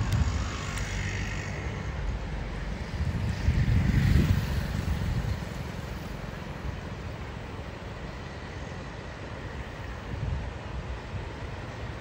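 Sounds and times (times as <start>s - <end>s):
vehicle passing on bridge: 0.0s - 7.6s
rushing river: 0.0s - 12.0s.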